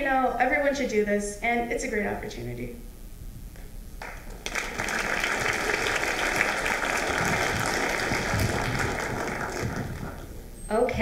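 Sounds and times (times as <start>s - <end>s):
audience applauding: 4.0s - 10.5s.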